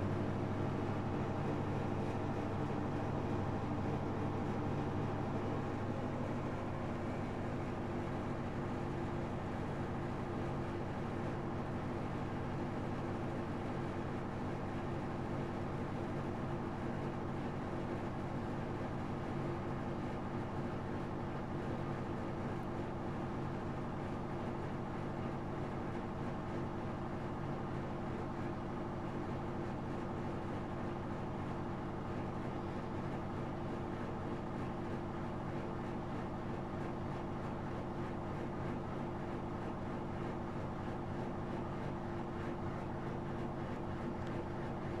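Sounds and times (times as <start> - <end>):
washing machine spinning: 0.0 - 14.6, 26.9 - 45.0.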